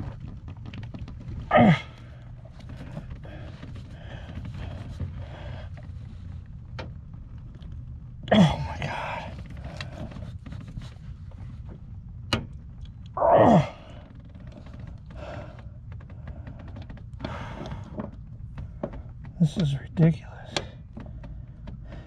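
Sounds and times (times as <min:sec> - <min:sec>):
low steady rumble: 0:00.0 - 0:22.0
man grunting: 0:01.5 - 0:02.0, 0:08.3 - 0:09.3, 0:13.2 - 0:13.9.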